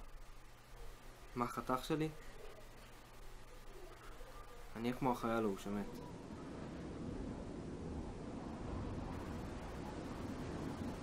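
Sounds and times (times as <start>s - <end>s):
faint hiss: 0.0s - 11.0s
low rumble: 6.0s - 11.0s.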